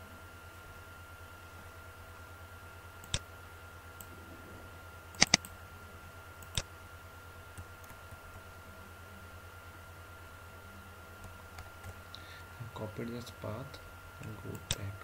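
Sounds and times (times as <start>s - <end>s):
faint steady hum: 0.0s - 15.0s
computer mouse clicks: 3.0s - 3.2s, 5.1s - 5.5s.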